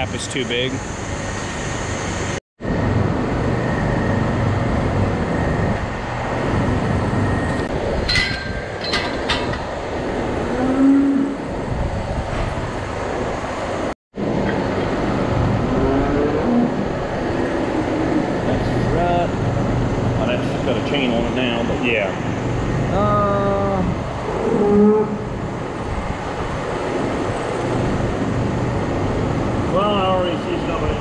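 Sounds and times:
ventilation fans rushing: 0.0 - 31.0
ringing metal clinks: 8.0 - 9.6.

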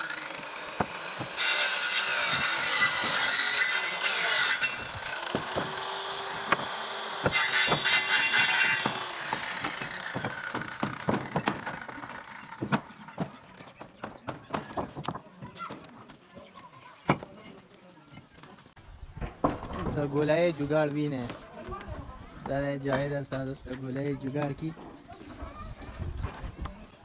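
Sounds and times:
bricks knocking on boards: 6.4 - 8.0, 8.7 - 13.3.

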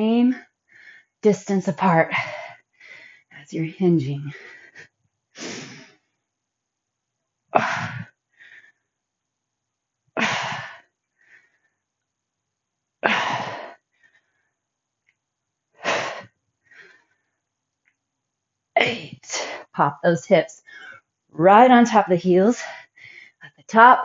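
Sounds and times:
woman breathing in: 2.2 - 3.4, 8.0 - 8.9, 16.0 - 17.4.

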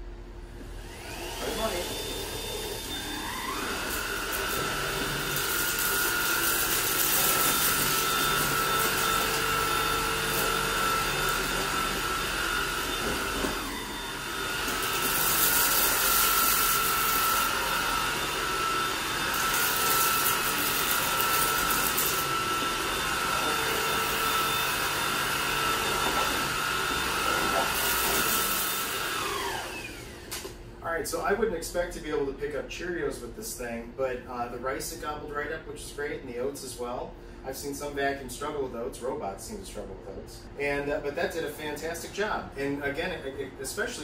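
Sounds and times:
vacuum cleaner motor whine: 0.4 - 30.7.

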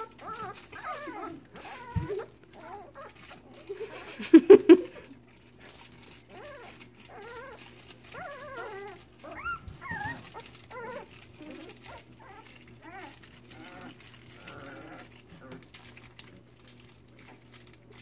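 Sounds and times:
puppies yapping: 0.0 - 4.0, 6.0 - 15.5
puppies whining: 0.0 - 18.0.

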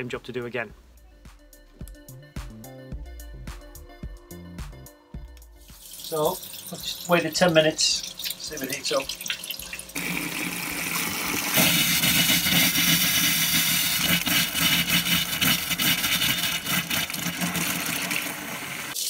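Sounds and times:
tap water running into sink: 5.7 - 19.0.

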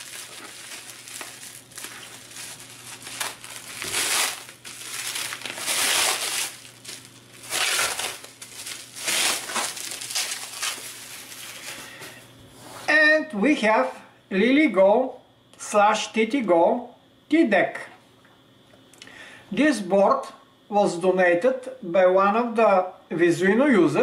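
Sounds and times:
bubble wrap crinkling: 0.0 - 11.9.

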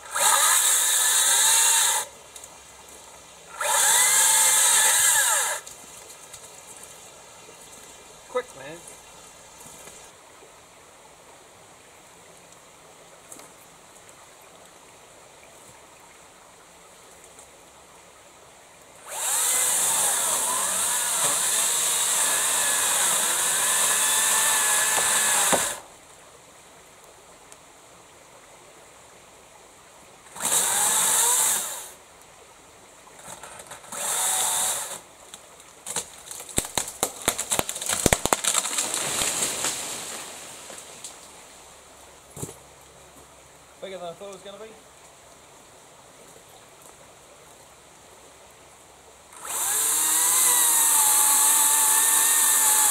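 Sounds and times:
chainsaw cutting wood: 0.0 - 2.1, 3.5 - 5.7, 19.0 - 25.9, 30.3 - 32.0, 33.2 - 35.1, 36.5 - 40.2, 49.4 - 52.9
trunk cracking and falling: 35.8 - 40.8.

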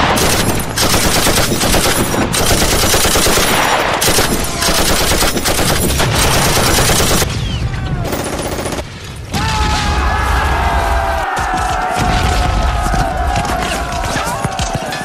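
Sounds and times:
machine-gun fire: 0.0 - 7.3, 8.1 - 8.9.

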